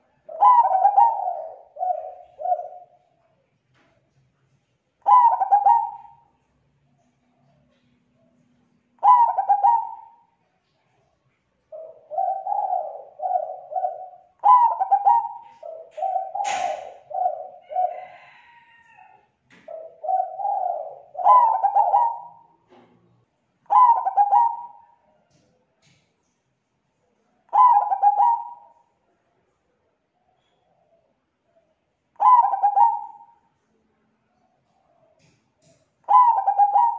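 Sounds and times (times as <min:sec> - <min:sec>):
dove cooing: 0:00.0 - 0:03.2, 0:05.0 - 0:06.4, 0:07.4 - 0:10.4, 0:11.7 - 0:22.9, 0:23.6 - 0:25.4, 0:27.5 - 0:28.9, 0:30.2 - 0:33.4, 0:34.4 - 0:36.9
sharp click: 0:16.4 - 0:16.9.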